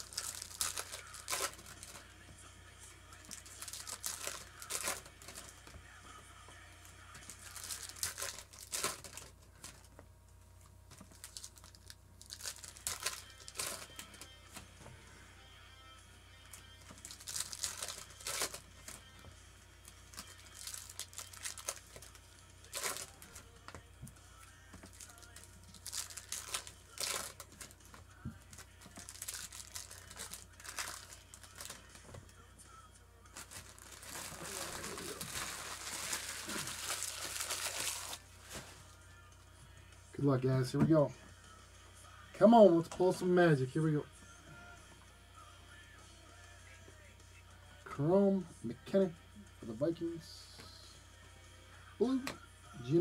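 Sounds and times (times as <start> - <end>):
foil wrappers tearing and crinkling: 0.0 - 2.1, 3.2 - 5.6, 7.2 - 9.9, 10.9 - 14.3, 16.9 - 19.0, 20.1 - 23.4, 24.8 - 32.1, 33.3 - 39.0.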